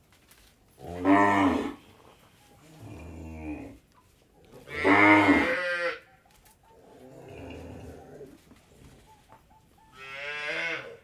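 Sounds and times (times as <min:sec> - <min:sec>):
cows mooing: 0:04.7 - 0:06.0, 0:10.0 - 0:11.0.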